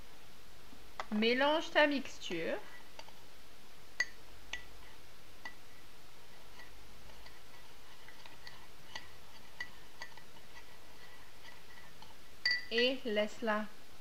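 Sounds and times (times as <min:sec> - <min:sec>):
spoon clinking in ceramic mug: 0:12.4 - 0:12.9.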